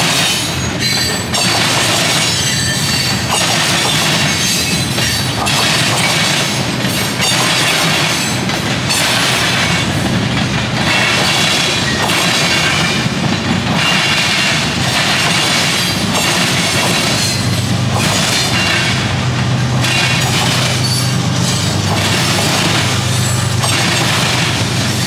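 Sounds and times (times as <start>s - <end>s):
low train rumble: 0.0s - 25.0s
train wheels clattering over crossing: 0.0s - 25.0s
high wheel squeal: 0.4s - 6.1s, 19.8s - 24.1s.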